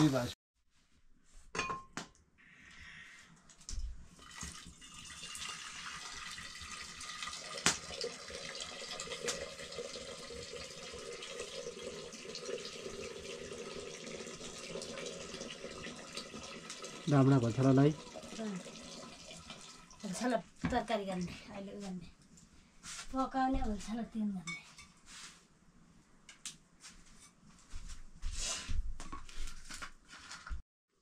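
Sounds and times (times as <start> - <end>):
water pouring into metal pot: 4.2 - 20.4.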